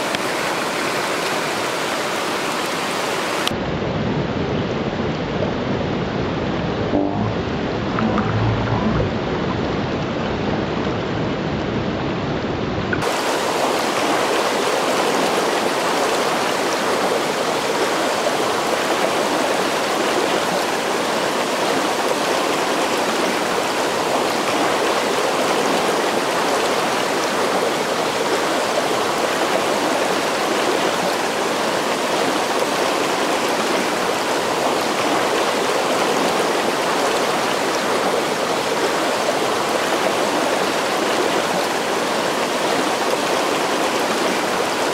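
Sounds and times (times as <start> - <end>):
creek water rushing over rocks: 0.0 - 3.6, 13.0 - 44.9.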